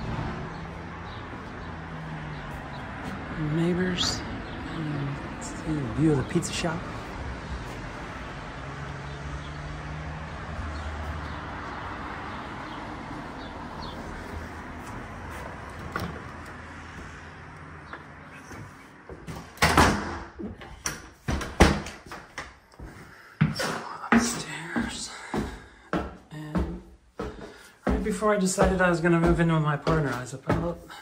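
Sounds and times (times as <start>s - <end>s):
footsteps on stairs: 0.5s - 4.6s, 6.2s - 9.2s, 10.3s - 19.6s, 20.4s - 31.0s
knocks and thumps of wooden door: 19.2s - 20.6s, 21.2s - 22.1s.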